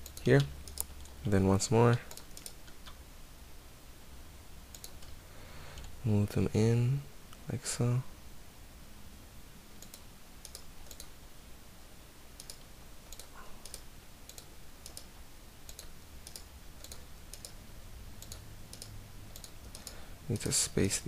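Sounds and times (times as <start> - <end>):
low steady hum: 0.0 - 21.0
mouse and keyboard clicks: 2.1 - 3.0, 9.8 - 11.1.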